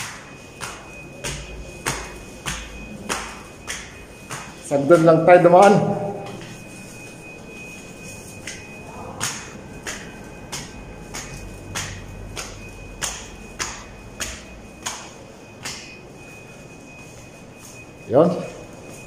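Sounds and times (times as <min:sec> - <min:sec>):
footsteps on hard floor: 0:00.0 - 0:05.2.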